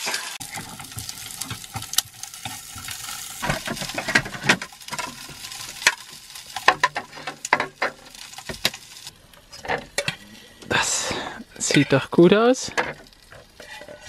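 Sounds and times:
dumplings sizzling in a frying pan: 0.0s - 14.0s
dishes clattering: 0.4s - 6.0s, 6.6s - 8.8s
fork scraping a pan: 13.6s - 14.0s.

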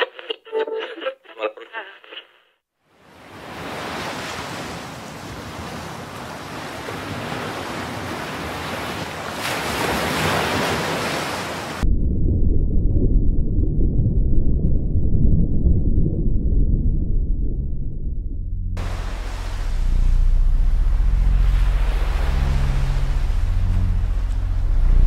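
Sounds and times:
ocean surf: 3.0s - 11.8s, 18.8s - 25.0s
loud deep muffled rumble: 11.9s - 25.0s.

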